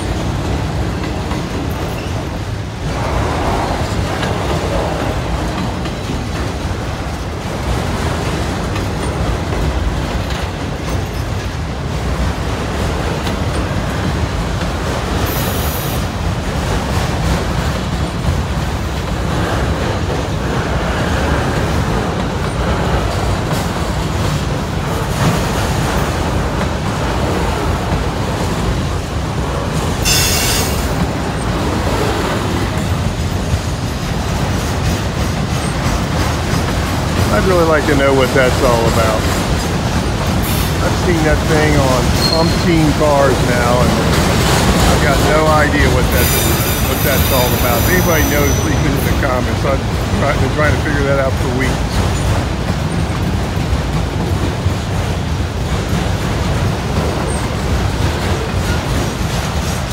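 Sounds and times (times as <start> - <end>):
train wheels rumbling on rails: 0.0 - 59.9
high wheel squeal: 30.0 - 30.9, 42.1 - 42.8, 46.1 - 49.3.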